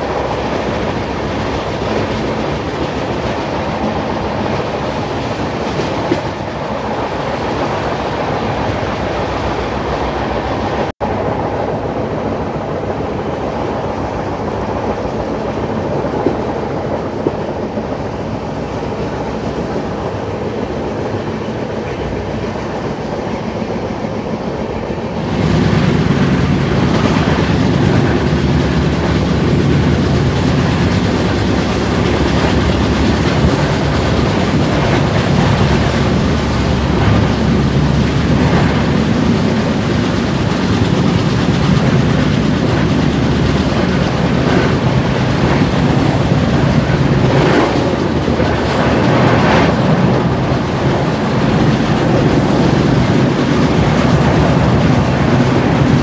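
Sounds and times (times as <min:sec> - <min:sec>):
train rumbling and rattling: 0:00.0 - 0:56.0.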